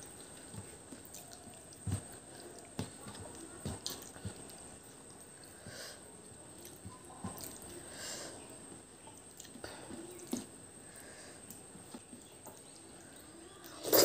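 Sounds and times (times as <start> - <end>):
chewing: 0.0 - 7.8, 9.1 - 10.5
fingers squishing rice and gravy: 0.0 - 14.0.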